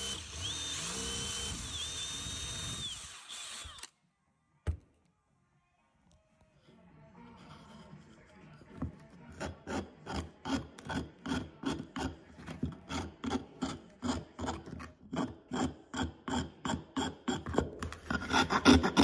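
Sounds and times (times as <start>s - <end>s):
hand file rasping on wood: 9.3s - 19.0s.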